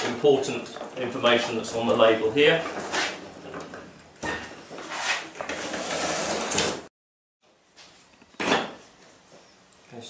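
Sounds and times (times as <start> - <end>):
lawnmower scraping on metal bench: 0.6 - 6.9.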